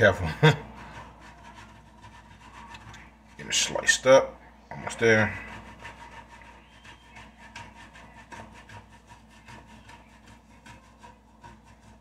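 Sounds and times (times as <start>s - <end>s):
cheese rasping on grater: 0.0s - 12.0s.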